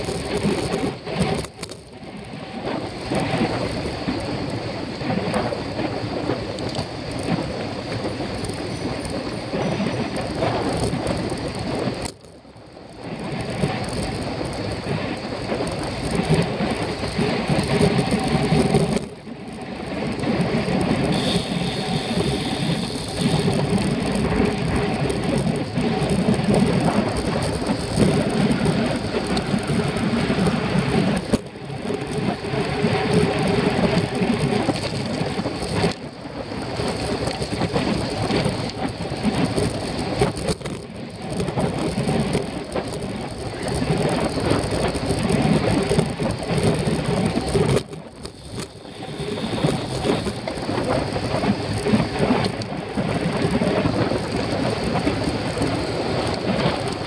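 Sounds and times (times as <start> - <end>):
wind rush and road noise: 0.0 - 57.0
faint high whine: 21.1 - 24.4.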